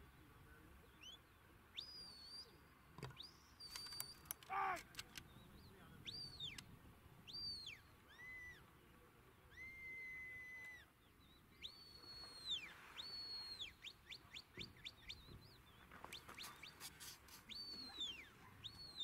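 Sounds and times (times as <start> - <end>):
person calling: 4.4 - 5.0.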